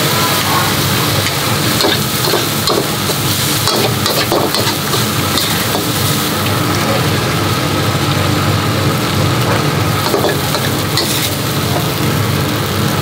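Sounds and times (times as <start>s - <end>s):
food sizzling in a wok: 0.0s - 13.0s
metal spatula scraping a wok: 10.1s - 11.4s.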